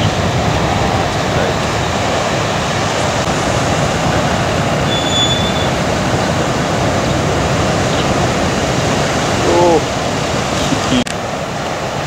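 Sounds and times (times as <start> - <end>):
heavy waves crashing: 0.0 - 12.0
thin high whistle: 4.9 - 5.7.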